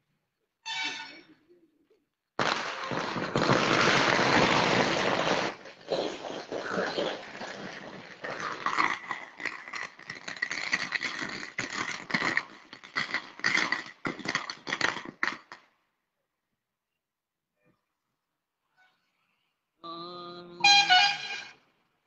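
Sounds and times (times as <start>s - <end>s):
firecrackers banging: 2.4s - 15.6s.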